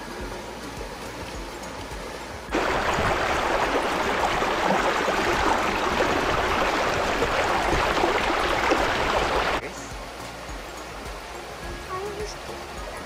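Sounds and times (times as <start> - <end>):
river water rushing: 2.5 - 11.7.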